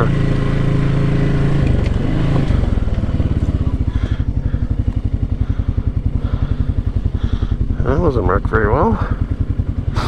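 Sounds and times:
atv engine rumbling: 0.0s - 10.0s.

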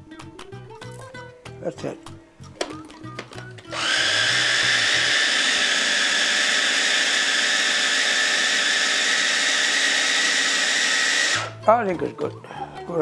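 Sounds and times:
electric food chopper whining: 3.6s - 11.6s.

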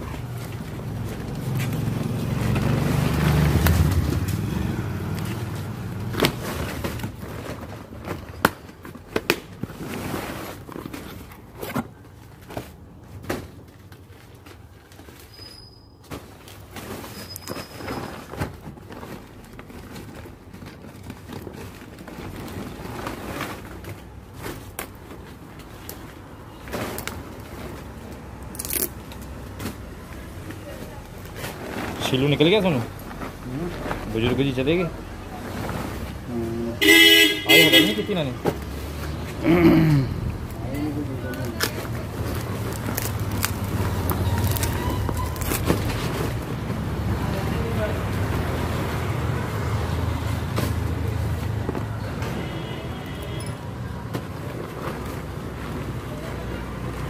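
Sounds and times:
cardboard packet clicks and rustles: 41.2s - 46.5s.

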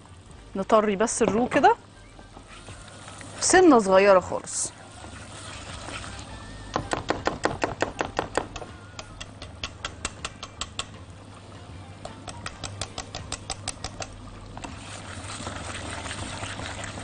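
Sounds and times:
whisk clicking against metal pot: 6.8s - 11.0s, 12.0s - 14.8s.

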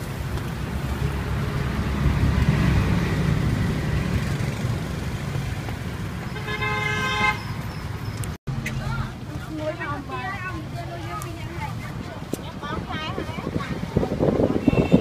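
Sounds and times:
motor vehicle rumble: 0.0s - 15.0s
vehicle horn: 6.3s - 7.6s, 14.6s - 15.0s.

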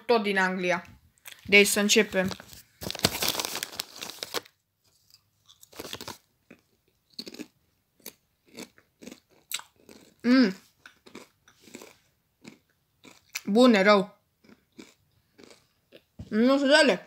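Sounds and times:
person chewing crisps: 2.2s - 13.5s, 14.4s - 16.2s.

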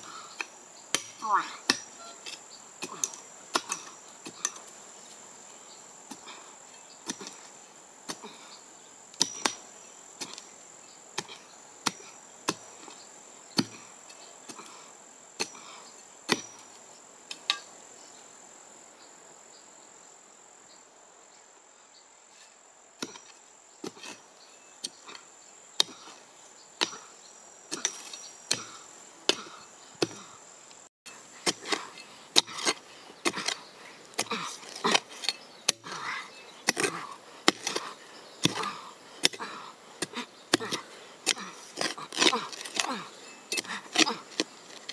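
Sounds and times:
spade striking dry soil: 0.0s - 4.8s, 6.1s - 8.4s, 9.1s - 10.5s, 11.1s - 14.8s, 15.4s - 17.7s, 22.4s - 26.2s, 26.8s - 30.3s, 31.1s - 44.9s
insect trill: 0.0s - 44.9s.

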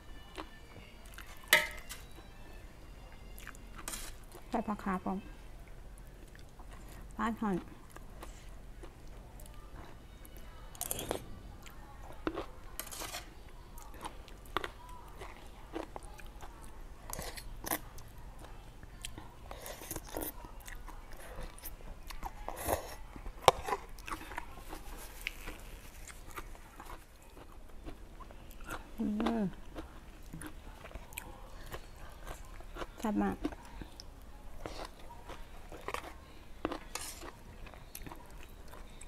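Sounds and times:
close-up chewing and biting: 10.8s - 11.3s, 13.8s - 39.0s.

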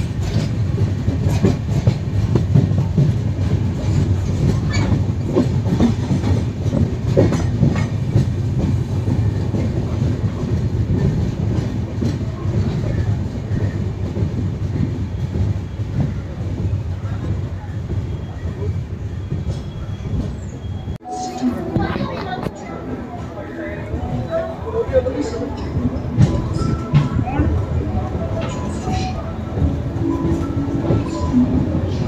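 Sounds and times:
wheels clicking over rail joints: 0.0s - 18.0s
train wheels rumbling on rail: 0.0s - 32.0s.

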